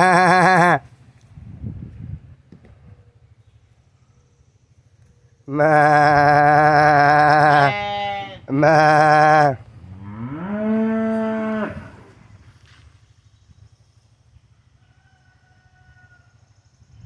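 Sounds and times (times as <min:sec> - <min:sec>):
goats bleating: 0:00.0 - 0:00.8, 0:05.5 - 0:09.6
low rising goat call: 0:00.0 - 0:00.9, 0:05.4 - 0:12.3.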